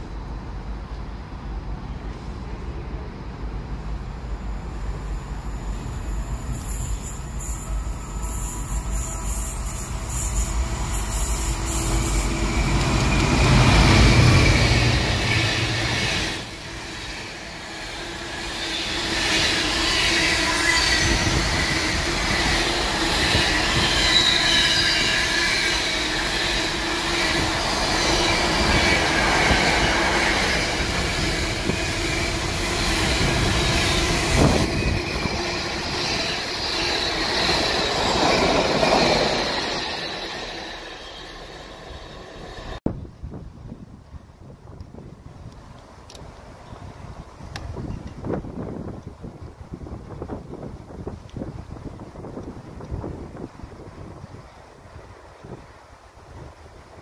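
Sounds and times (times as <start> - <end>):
locomotive passing: 2.8 - 42.8
wheel squeal: 5.7 - 42.8.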